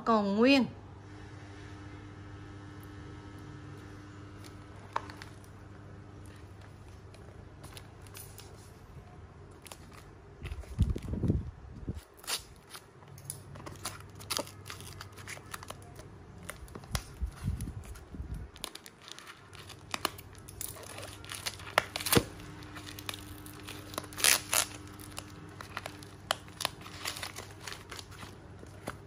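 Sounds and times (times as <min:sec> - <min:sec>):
packaging tearing and crumpling: 0:09.5 - 0:29.0.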